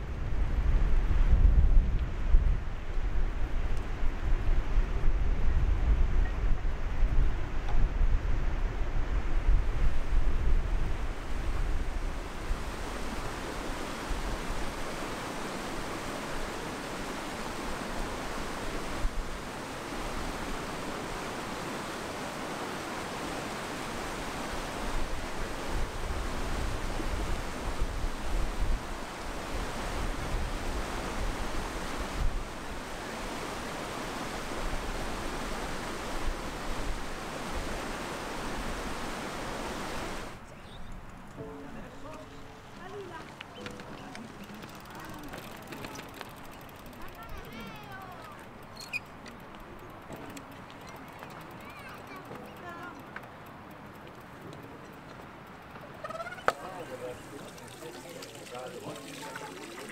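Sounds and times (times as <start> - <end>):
wind buffeting microphone: 0.0 - 22.0, 24.0 - 41.4
stream rushing over rocks: 11.0 - 40.4, 56.5 - 59.9.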